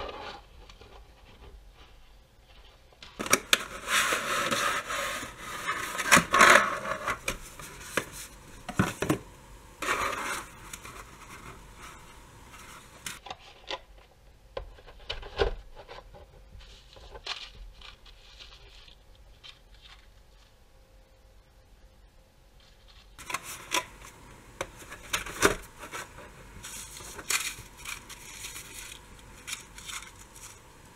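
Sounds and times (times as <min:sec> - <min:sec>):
cardboard and plastic packaging scraping: 0:03.2 - 0:09.2, 0:09.8 - 0:13.7, 0:22.6 - 0:30.9.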